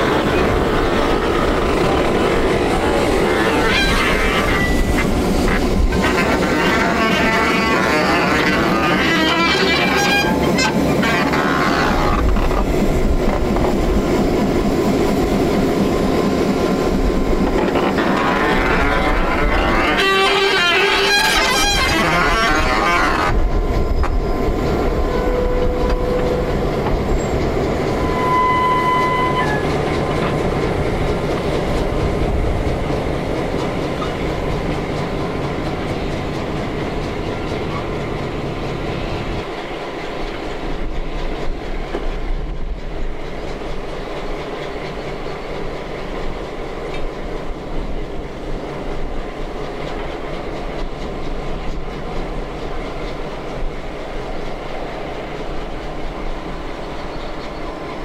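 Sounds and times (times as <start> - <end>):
locomotive engine rumble: 0.0 - 58.0
train wheels on rails: 0.0 - 58.0
wheel squeals: 2.8 - 12.6, 17.4 - 23.4, 27.1 - 29.9.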